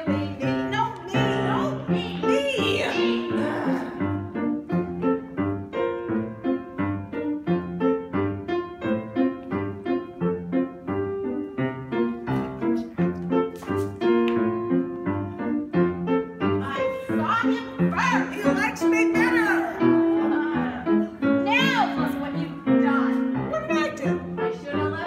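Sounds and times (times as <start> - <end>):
bouncy piano dance music: 0.0 - 25.0.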